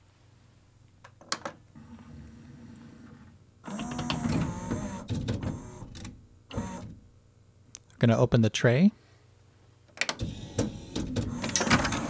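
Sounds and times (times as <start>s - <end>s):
mechanism whirring and clattering: 10.1s - 12.0s.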